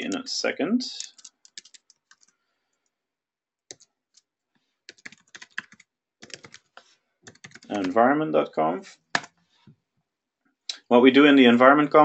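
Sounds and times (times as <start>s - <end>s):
typing on computer keyboard: 1.0s - 2.4s, 3.7s - 4.3s, 4.9s - 8.0s.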